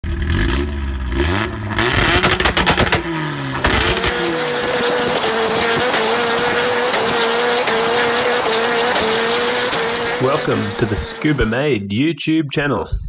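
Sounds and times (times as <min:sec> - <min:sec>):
car engine revving: 0:00.0 - 0:11.8
tyre squeal: 0:04.0 - 0:11.4.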